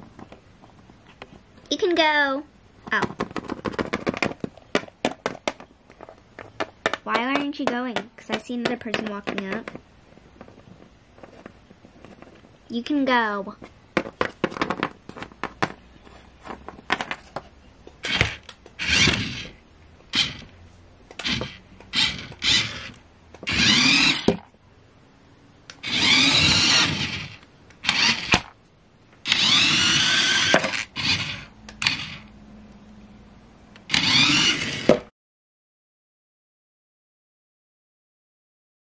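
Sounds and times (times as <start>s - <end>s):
plastic toys clicking and knocking: 2.8s - 9.8s, 13.9s - 15.8s
toy car wheels whirring: 18.0s - 20.5s, 21.1s - 24.4s, 25.8s - 28.6s, 29.2s - 32.3s, 33.8s - 35.0s.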